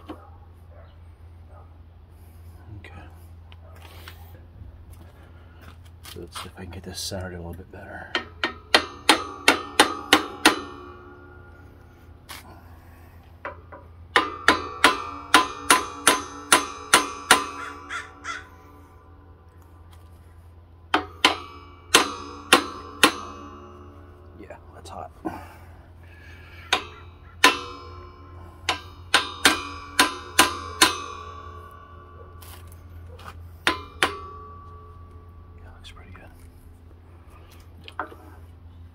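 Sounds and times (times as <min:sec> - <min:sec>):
hammer tapping on steel: 0:08.0 - 0:11.6, 0:13.3 - 0:18.5, 0:20.9 - 0:24.4, 0:26.3 - 0:35.4.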